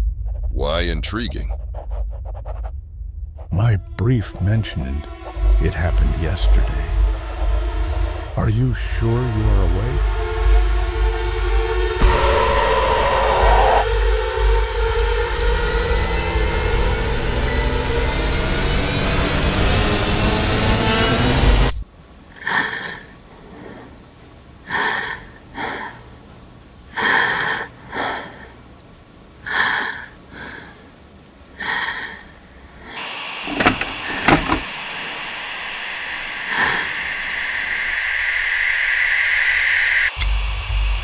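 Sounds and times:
steady high whine: 3.0s - 21.9s, 32.6s - 41.0s
tape static hiss: 21.4s - 41.0s
wheezing breaths: 22.3s - 24.0s, 24.6s - 26.2s, 26.9s - 28.6s, 29.4s - 33.0s.

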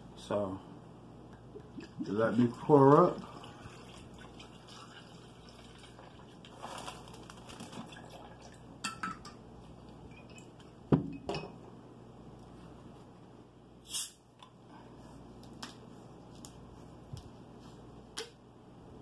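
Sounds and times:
bottle opening hiss: 13.8s - 14.2s.

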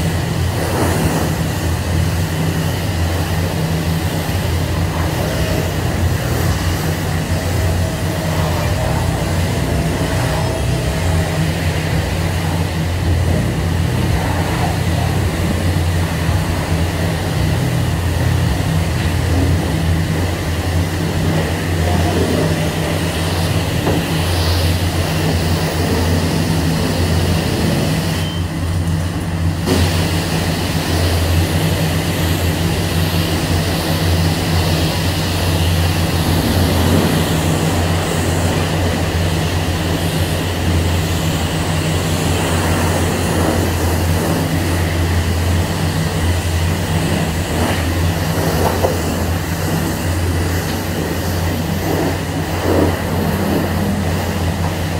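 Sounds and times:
constant low drone: 0.0s - 54.9s
high-pressure water spray hissing: 0.0s - 54.9s.

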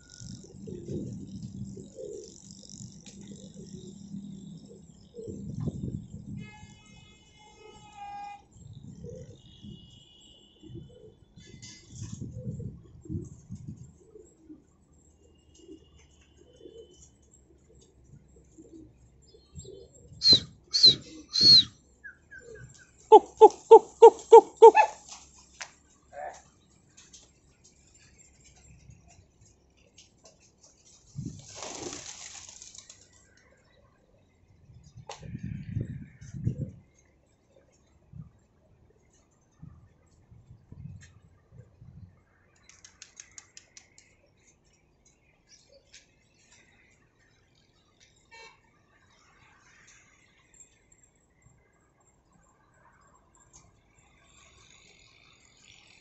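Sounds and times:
birds chirping and clicking: 0.0s - 6.2s, 13.2s - 33.9s, 42.4s - 48.3s
loud whistle-like bird calls: 20.2s - 24.9s.

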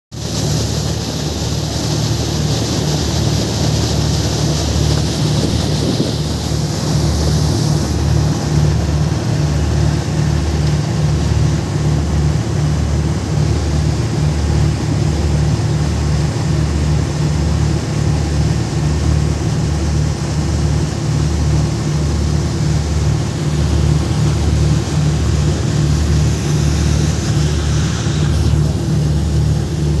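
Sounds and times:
churning wake rushing: 0.1s - 30.0s
motorboat engine throbbing: 0.2s - 30.0s
wind on microphone: 2.2s - 10.4s.

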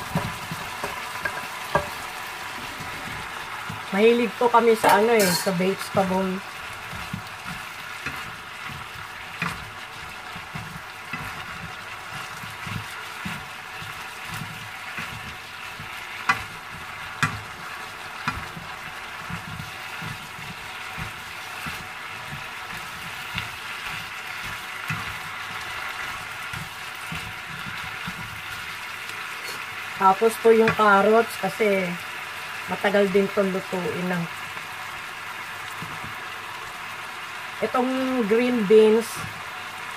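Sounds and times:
spatula scraping and knocking pan: 0.0s - 2.1s, 2.7s - 29.2s, 30.6s - 31.0s
vegetables sizzling in frying pan: 0.0s - 39.9s.

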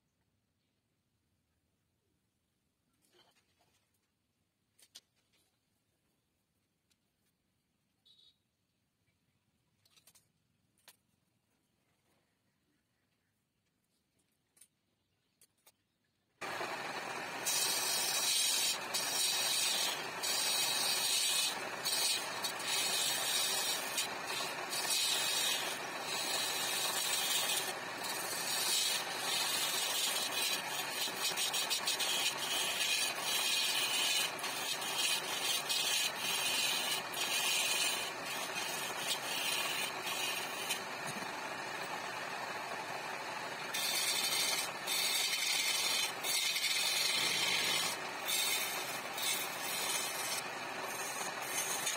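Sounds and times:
lathe chisel cutting wood: 16.4s - 51.9s.

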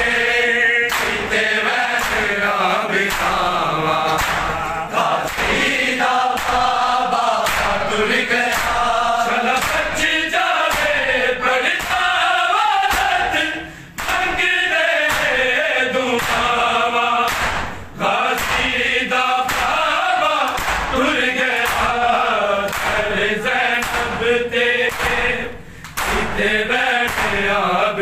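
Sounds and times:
men chanting in chorus: 0.0s - 28.0s
hands slapping bare chests: 0.9s - 1.4s, 2.0s - 2.4s, 3.1s - 3.4s, 4.0s - 4.6s, 5.2s - 5.6s, 6.3s - 7.8s, 8.5s - 8.9s, 9.5s - 9.9s, 10.7s - 11.1s, 11.7s - 12.1s, 12.9s - 13.3s, 14.0s - 14.3s, 15.0s - 15.4s, 16.1s - 16.6s, 17.2s - 18.8s, 19.4s - 19.8s, 20.4s - 22.1s, 22.7s - 23.1s, 23.7s - 24.2s, 24.8s - 27.6s.

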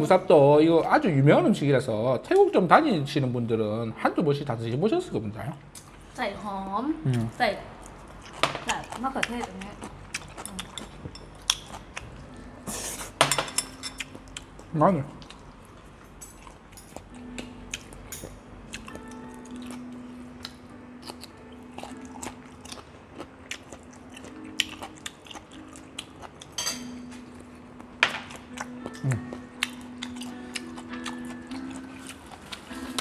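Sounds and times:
faint background music: 0.0s - 33.0s
people chewing food: 7.1s - 33.0s.

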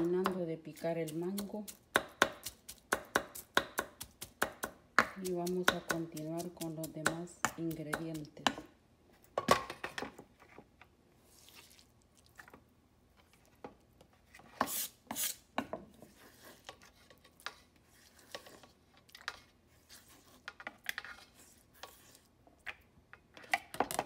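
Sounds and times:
knife scraping on board: 14.4s - 15.4s, 19.3s - 22.3s.

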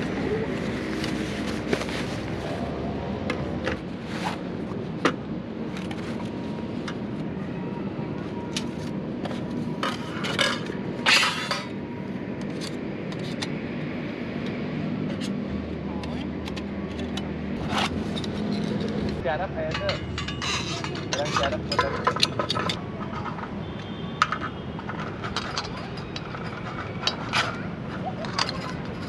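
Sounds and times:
metal clatter: 17.6s - 23.6s, 24.2s - 29.0s
metal cookware clinking: 18.1s - 22.8s.

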